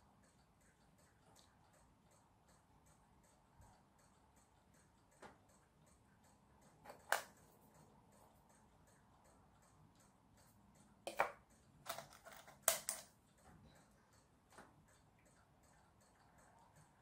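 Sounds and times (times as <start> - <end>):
clock ticking: 0.0 - 11.9, 13.1 - 17.0
plastic parts clicking: 11.1 - 13.1.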